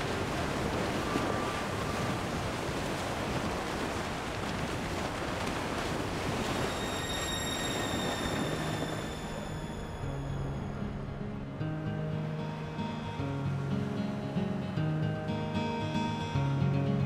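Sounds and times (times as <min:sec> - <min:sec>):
music with high sustained tones: 0:06.6 - 0:17.0.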